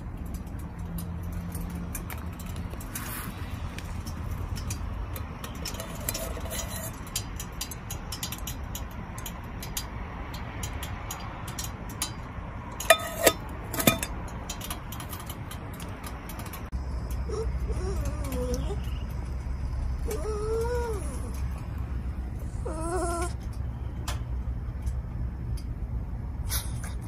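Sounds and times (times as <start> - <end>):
metal pot lid clinking: 12.8 - 14.2.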